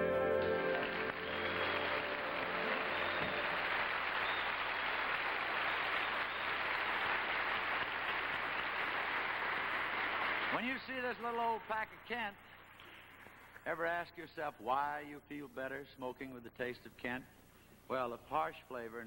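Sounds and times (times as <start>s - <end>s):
band held chord: 0.0s - 3.2s
audience applauding: 0.0s - 10.8s.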